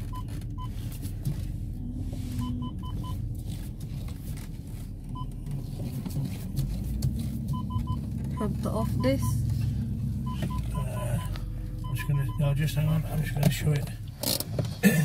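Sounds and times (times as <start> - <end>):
car engine idling: 0.0 - 15.0
short electronic beeps: 2.3 - 3.2.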